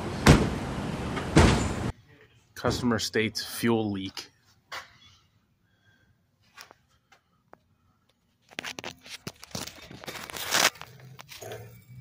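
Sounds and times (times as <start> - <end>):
material rustling and tearing: 9.0 - 10.9.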